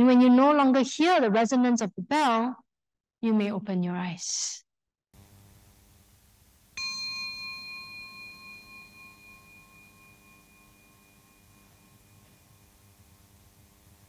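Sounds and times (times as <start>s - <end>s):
singing bowl ringing: 6.8s - 14.0s.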